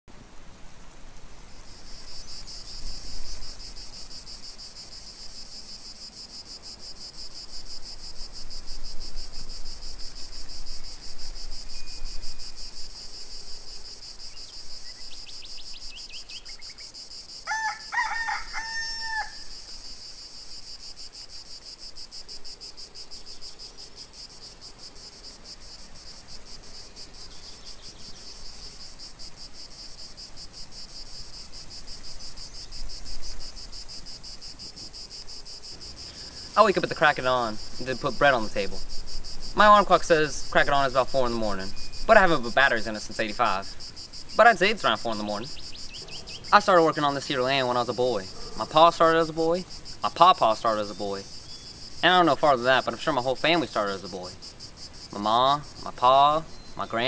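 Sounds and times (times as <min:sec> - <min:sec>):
wind rumbling on microphone: 0:00.1 - 0:05.7, 0:06.9 - 0:15.8
crickets chirping: 0:00.1 - 0:57.0
rooster crowing: 0:17.4 - 0:19.6.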